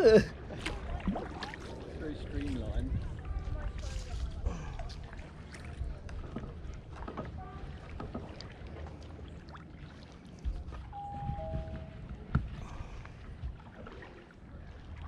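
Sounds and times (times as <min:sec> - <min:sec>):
low steady rumble: 0:03.0 - 0:15.0
knocks and clicks from kayak: 0:05.6 - 0:09.2, 0:10.4 - 0:12.6.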